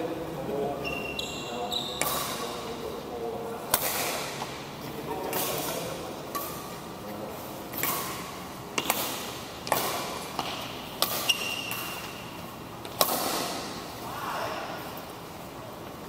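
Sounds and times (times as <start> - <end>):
rackets hitting shuttlecock: 1.9 - 2.6, 3.7 - 4.6, 5.2 - 6.9, 7.7 - 13.8.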